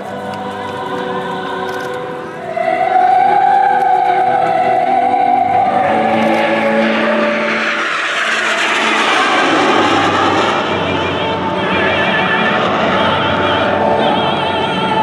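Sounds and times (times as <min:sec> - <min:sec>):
jet engines roaring: 0:00.0 - 0:15.0
opera music: 0:00.0 - 0:15.0.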